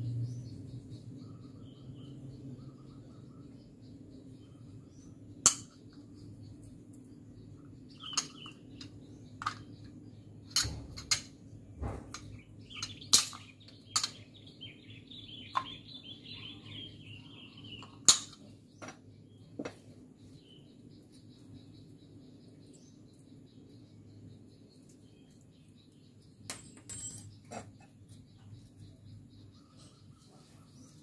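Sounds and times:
birds chirping: 0.0 - 31.0
small metal parts clicking: 8.0 - 11.4, 12.1 - 14.3.

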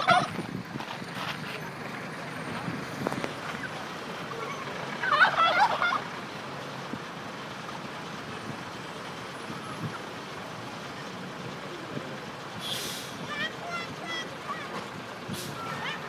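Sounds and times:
turkey gobbling: 0.0 - 0.3, 4.4 - 6.1.

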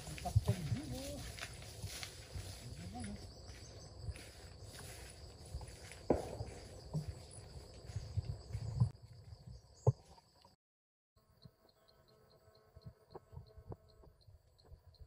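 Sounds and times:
rustling in grass: 0.0 - 8.7
high-pitched insect chorus: 0.0 - 10.5.

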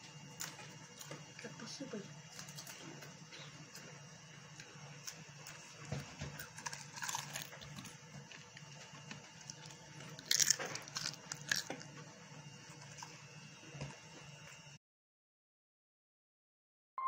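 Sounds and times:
steady low hum: 0.0 - 14.8
chips crunching: 2.3 - 3.9, 4.5 - 12.0.

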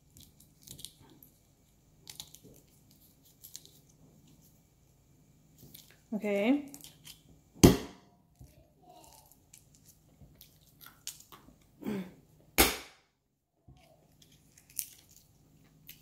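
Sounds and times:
metal mallet cracking walnut: 12.6 - 13.0.

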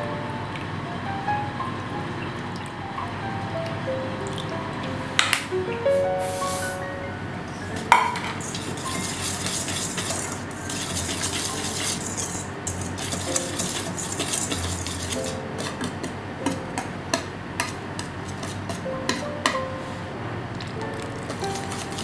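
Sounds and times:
whisk ticking against metal bowl: 7.9 - 19.6, 21.2 - 22.0
whisk swishing through flour: 8.3 - 16.2, 17.1 - 19.2, 21.2 - 22.0.

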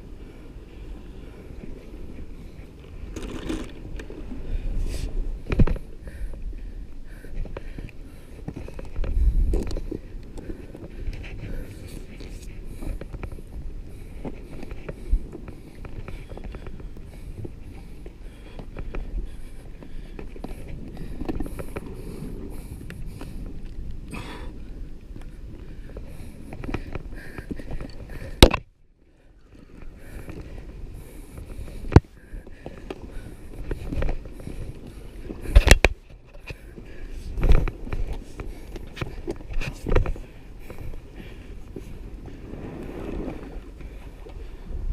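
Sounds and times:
wind buffeting microphone: 0.0 - 28.7, 29.4 - 44.9
sea washing: 0.0 - 44.9.

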